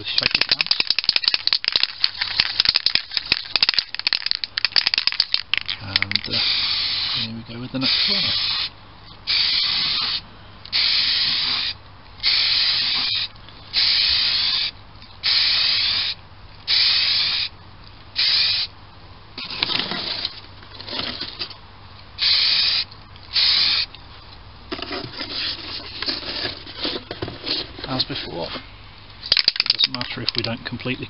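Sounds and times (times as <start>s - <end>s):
aerosol can spraying: 6.1s - 7.2s, 9.3s - 17.5s.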